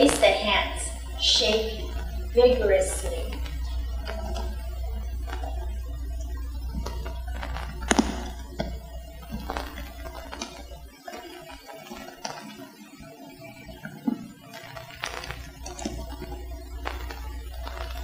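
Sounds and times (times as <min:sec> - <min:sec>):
low hum: 0:00.0 - 0:18.0
faint clicks and taps: 0:03.0 - 0:12.7.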